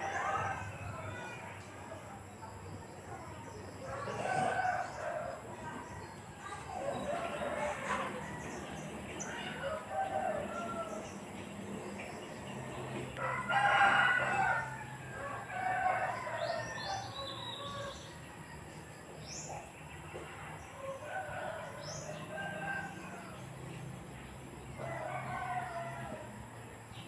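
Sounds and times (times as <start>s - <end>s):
rooster crowing: 7.0s - 11.2s, 13.2s - 18.2s, 24.7s - 26.4s.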